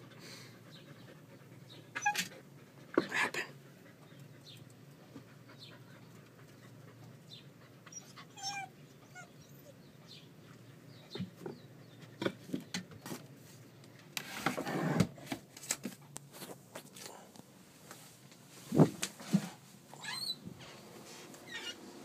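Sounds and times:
dog whining: 0:01.9 - 0:02.4, 0:07.9 - 0:10.2, 0:19.9 - 0:20.5, 0:21.4 - 0:21.8.

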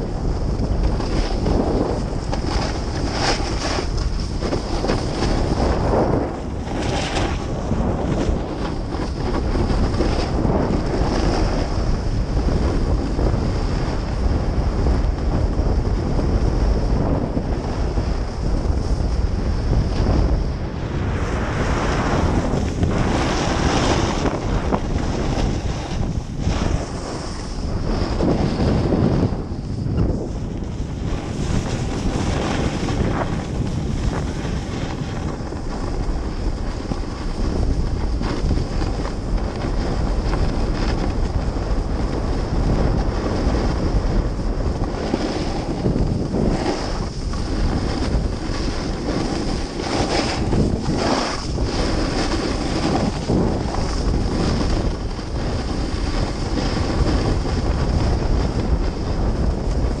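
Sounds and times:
skis scraping over snow: 0:00.0 - 1:00.0
wind buffeting microphone: 0:00.0 - 1:00.0.

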